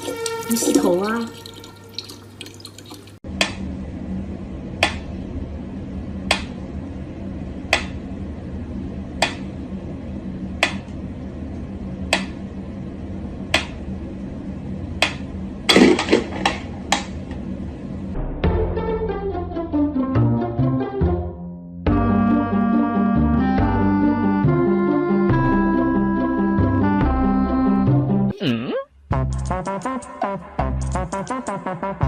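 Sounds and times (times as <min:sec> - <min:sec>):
steady low hum: 0:03.2 - 0:18.4.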